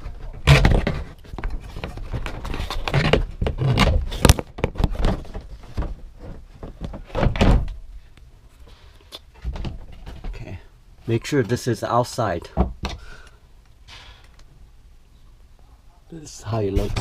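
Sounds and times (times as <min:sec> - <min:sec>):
plastic panels thunking and scraping: 0:00.0 - 0:07.8, 0:09.3 - 0:10.6, 0:16.7 - 0:17.0.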